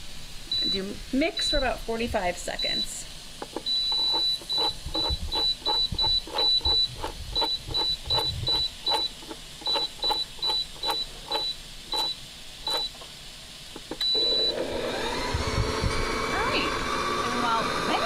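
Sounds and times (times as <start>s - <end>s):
mixer dial beeps and clicks: 0.5s - 0.9s, 2.6s - 13.0s, 13.9s - 14.7s.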